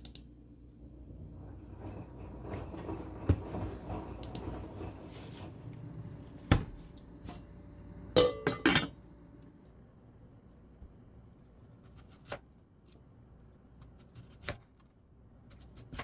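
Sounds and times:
washing machine rumbling: 0.8s - 9.4s
metal pot clanking: 8.2s - 9.0s.

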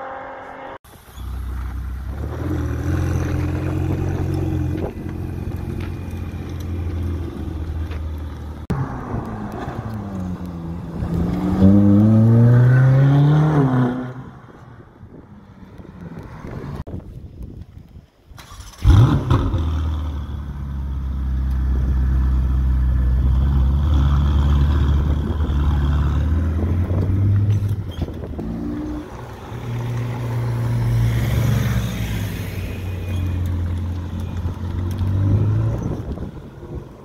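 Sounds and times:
car engine starting and idling: 18.3s - 37.0s.

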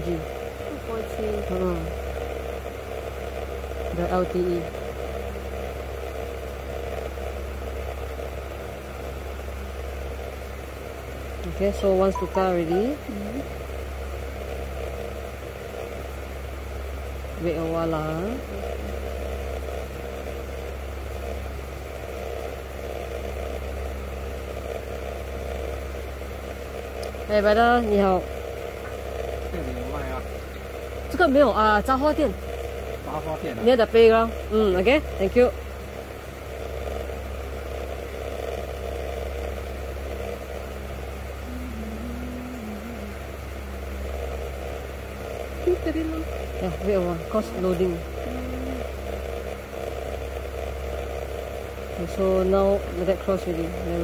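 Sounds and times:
low mechanical hum: 0.0s - 54.0s
faint wavering tone: 12.0s - 13.5s, 41.4s - 44.2s.

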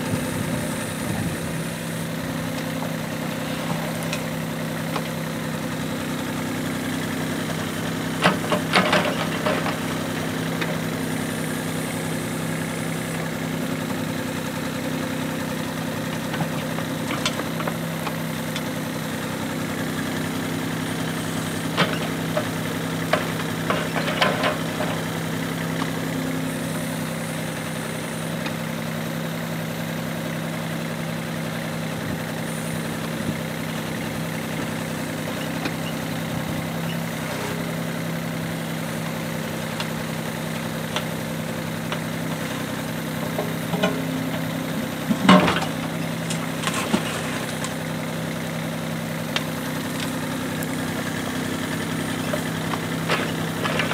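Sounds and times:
diesel engine running: 0.0s - 53.9s.

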